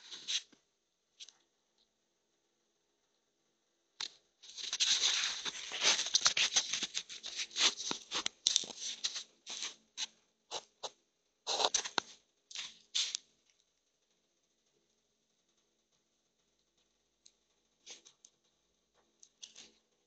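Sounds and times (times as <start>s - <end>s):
rustling and scratching: 4.4s - 13.3s, 17.8s - 19.9s.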